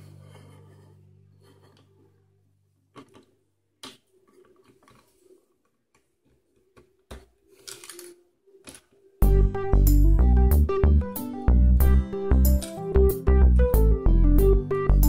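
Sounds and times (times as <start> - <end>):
plastic toy pieces clicking: 7.6 - 8.9
loud guitar music: 9.2 - 15.0.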